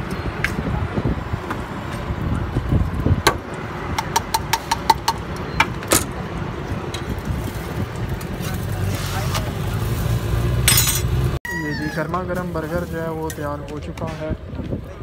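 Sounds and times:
traffic rumble: 0.0 - 15.0
metal utensils clinking: 10.6 - 11.2.

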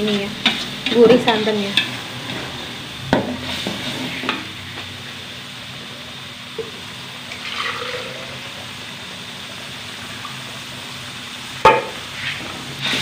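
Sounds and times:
metal spatula scraping a wok: 3.3 - 4.5, 12.1 - 13.0
spice paste sizzling in oil: 8.3 - 13.0.

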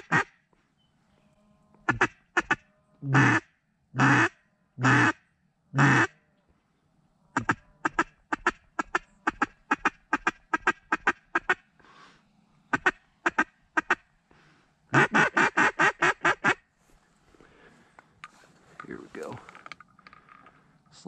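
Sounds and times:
duck quacking: 0.0 - 0.4, 1.8 - 5.2, 5.8 - 6.1, 7.4 - 11.7, 12.7 - 14.1, 14.9 - 16.6.

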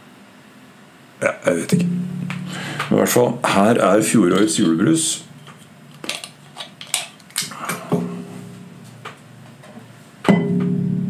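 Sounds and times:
steady low tone: 1.7 - 5.8, 7.9 - 9.6, 10.3 - 11.0.

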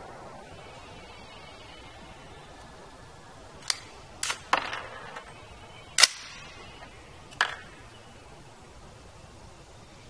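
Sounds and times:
rifle gunshots: 6.0 - 6.8.

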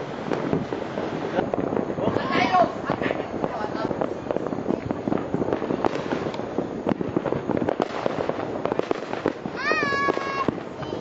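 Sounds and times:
firecrackers crackling: 0.0 - 11.0.

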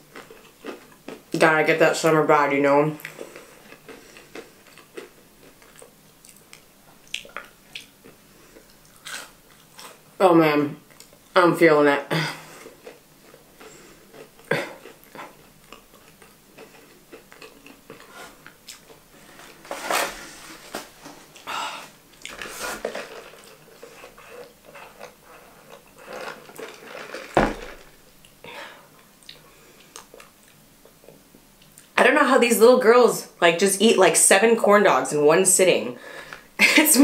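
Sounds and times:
clicks and rustles of eating: 3.0 - 10.0, 12.6 - 19.8, 22.1 - 28.4
thump on table: 27.4 - 27.9.

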